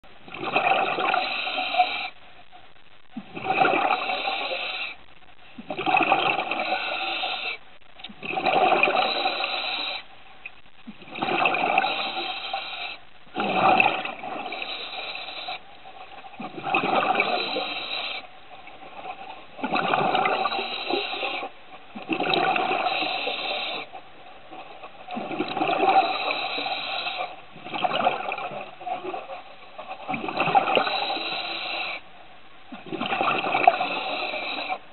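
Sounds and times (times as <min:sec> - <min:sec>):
bubbly regulator exhalations: 0:00.3 - 0:02.2, 0:03.2 - 0:05.0, 0:05.6 - 0:10.0, 0:10.8 - 0:15.6, 0:16.4 - 0:18.2, 0:19.6 - 0:23.9, 0:25.2 - 0:29.2, 0:30.0 - 0:32.0, 0:32.7 - 0:34.8.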